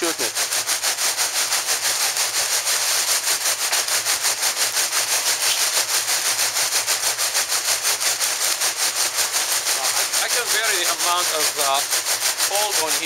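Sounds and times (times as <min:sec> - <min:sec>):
coal auger scraping hiss: 0:00.0 - 0:13.0.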